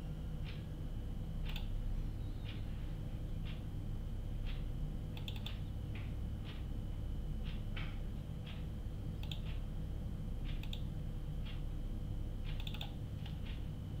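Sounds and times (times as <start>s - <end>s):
steady low hum: 0.0s - 14.0s
computer mouse and keyboard clicks: 1.4s - 1.8s, 5.2s - 6.7s, 7.5s - 9.6s, 10.5s - 10.9s, 12.4s - 13.7s.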